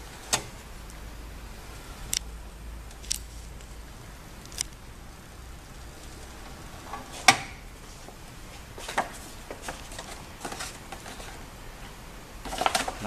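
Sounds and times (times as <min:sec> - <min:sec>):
paper rustling: 0:08.8 - 0:11.4, 0:12.4 - 0:13.0.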